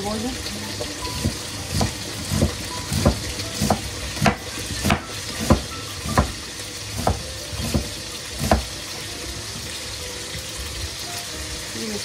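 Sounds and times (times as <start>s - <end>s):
chicken sizzling in a pot: 0.0s - 12.0s
knife slicing onion on cutting board: 1.2s - 8.8s.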